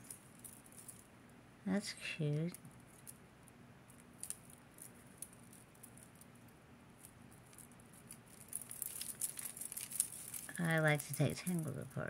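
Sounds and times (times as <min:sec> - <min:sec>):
jewelry chains and beads clinking: 0:00.0 - 0:01.0, 0:04.0 - 0:11.8.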